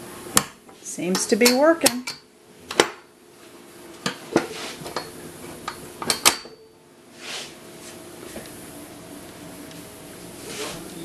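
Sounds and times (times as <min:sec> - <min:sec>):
soft scrape: 0:07.2 - 0:08.0.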